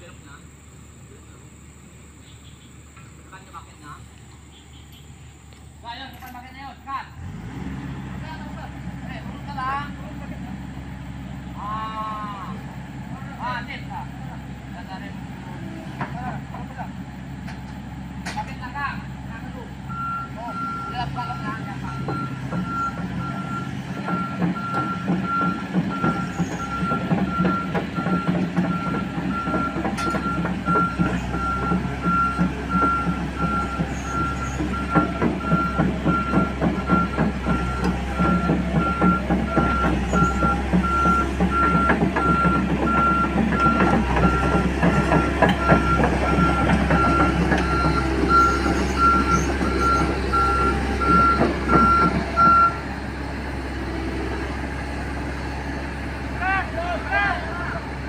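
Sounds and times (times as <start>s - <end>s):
diesel engine running: 0.0s - 58.0s
tracks rattling: 2.7s - 58.0s
excavator travel alarm beeping: 19.7s - 53.0s.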